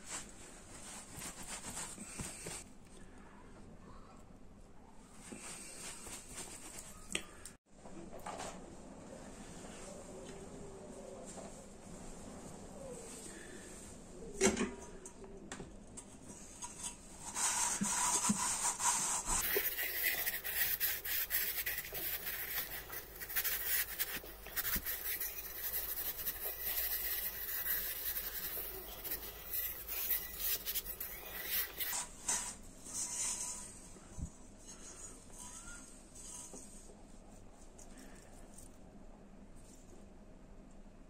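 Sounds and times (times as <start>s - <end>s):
cloth scrubbing copper bowl: 17.2s - 32.2s.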